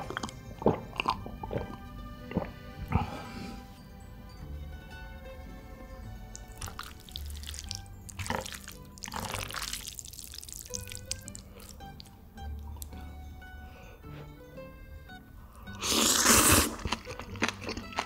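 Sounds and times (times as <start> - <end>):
slurping and chewing: 0.0 - 3.7, 6.2 - 13.0, 15.5 - 18.0
background music with bass: 0.0 - 18.0.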